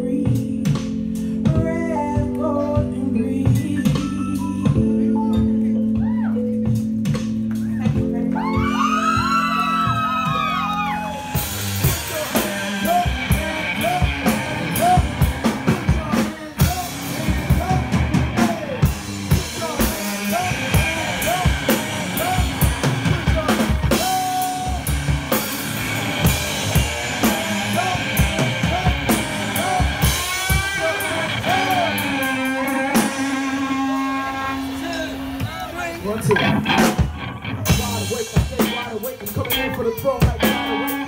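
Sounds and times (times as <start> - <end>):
drum kit playing busy beat: 0.0 - 41.0
short pitched notes: 23.8 - 38.2.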